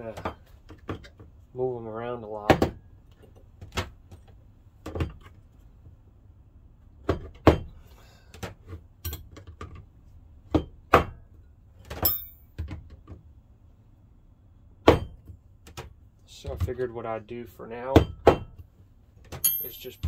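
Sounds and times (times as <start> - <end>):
metal wrenches clinking: 12.0 - 12.5, 19.4 - 20.0.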